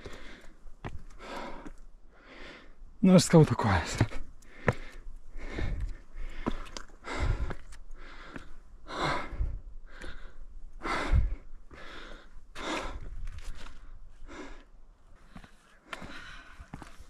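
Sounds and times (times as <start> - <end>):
footsteps on rocks: 0.0 - 1.8, 3.2 - 8.6, 12.6 - 13.9, 15.2 - 17.0
person breathing heavily: 0.0 - 2.8, 4.4 - 17.0.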